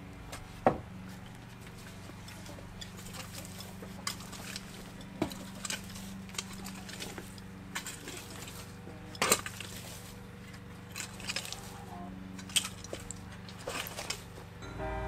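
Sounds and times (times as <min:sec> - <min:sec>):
metal rake scraping soil and stones: 0:01.7 - 0:15.0
low hum: 0:13.8 - 0:15.0.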